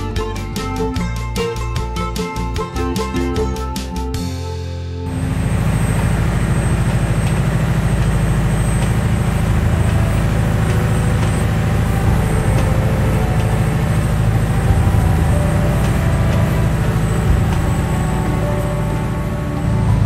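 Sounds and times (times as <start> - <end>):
boat engine droning: 5.1 - 20.0
water rushing along hull: 5.1 - 20.0.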